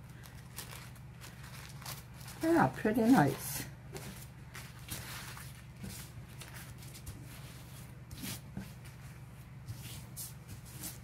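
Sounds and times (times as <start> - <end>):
low steady hum: 0.0 - 11.0
rice paper rustling: 0.0 - 11.0.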